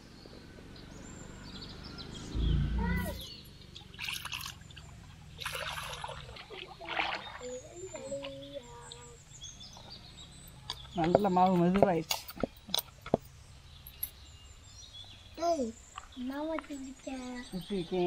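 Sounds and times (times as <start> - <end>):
water trickling and splashing: 3.0 - 12.0.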